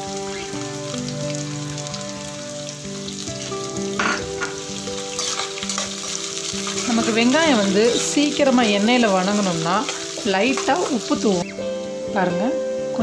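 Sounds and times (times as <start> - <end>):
onions sizzling in hot oil: 0.0 - 12.9
soft background music: 0.0 - 13.0.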